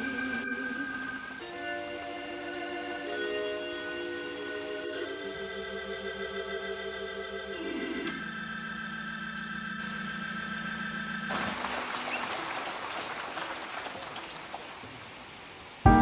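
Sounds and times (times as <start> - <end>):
crackling hiss: 0.0 - 6.2, 8.0 - 16.0
held organ chord: 0.2 - 11.3.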